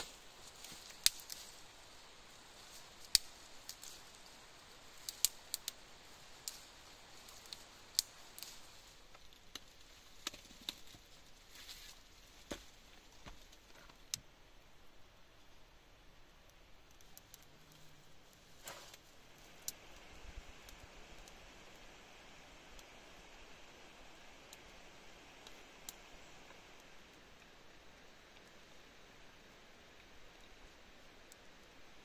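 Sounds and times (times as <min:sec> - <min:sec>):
faint steady hiss: 0:00.0 - 0:32.0
sharp clicks and snaps: 0:03.0 - 0:03.9, 0:04.9 - 0:08.5.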